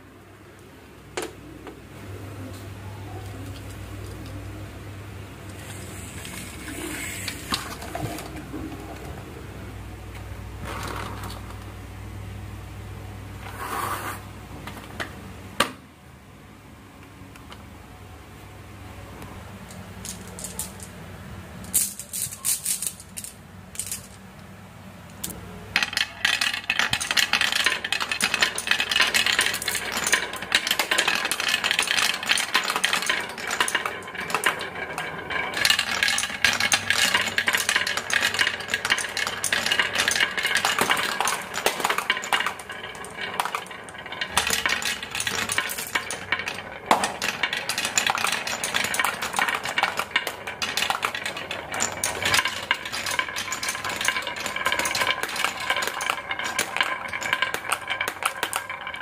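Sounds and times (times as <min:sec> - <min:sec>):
marbles rolling and clattering: 0:03.1 - 0:04.7, 0:05.3 - 0:09.4, 0:10.1 - 0:11.9, 0:19.5 - 0:24.3, 0:25.1 - 0:59.0.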